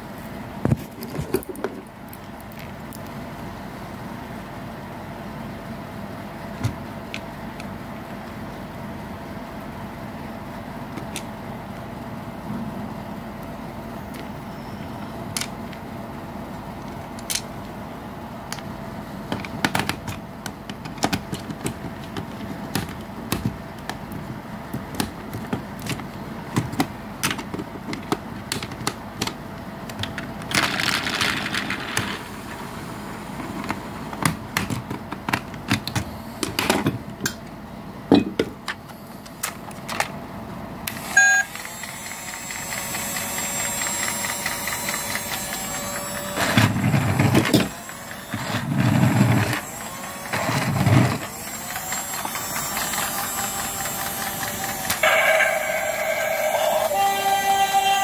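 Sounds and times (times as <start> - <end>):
short tone: 13.9 - 15.2, 41.1 - 41.5, 55.0 - 58.0
small electric motor whine: 40.9 - 58.0.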